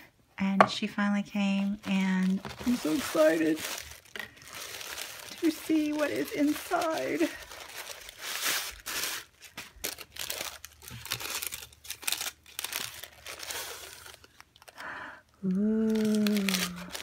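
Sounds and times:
tissue paper crinkling: 0:01.4 - 0:14.8, 0:15.8 - 0:17.0.

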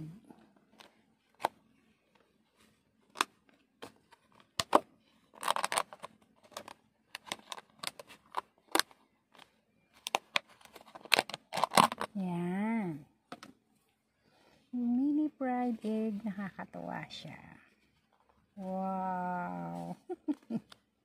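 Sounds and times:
plastic tub clicking and crackling: 0:03.1 - 0:12.2.

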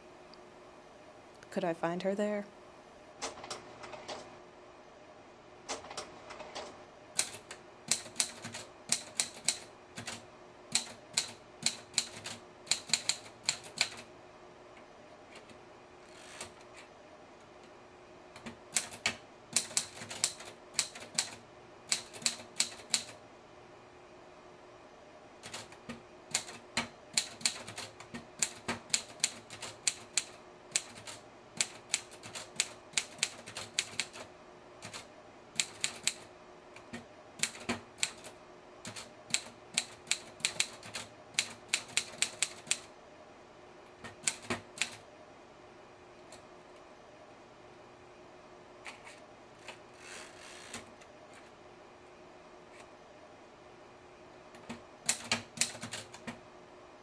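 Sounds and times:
typewriter keys clacking: 0:06.5 - 0:14.0, 0:18.4 - 0:23.1, 0:27.2 - 0:34.2, 0:38.9 - 0:42.8, 0:55.1 - 0:56.3.

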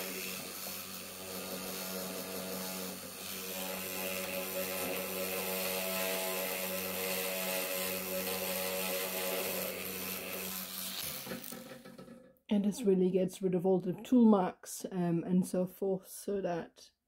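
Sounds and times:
rotary tool whining: 0:00.0 - 0:12.3.

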